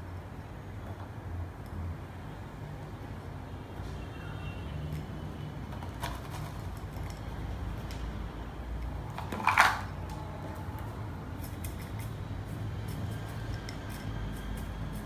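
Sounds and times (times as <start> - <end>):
plastic scoop clattering on table: 9.2 - 9.9.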